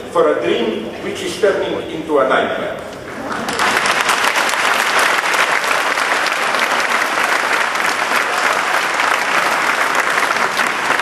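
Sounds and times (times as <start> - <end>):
audience applauding: 3.3 - 11.0.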